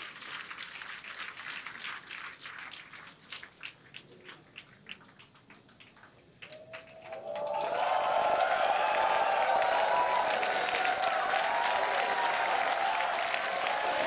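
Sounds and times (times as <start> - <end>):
crowd applauding: 6.4 - 14.0
crowd cheering: 6.5 - 14.0.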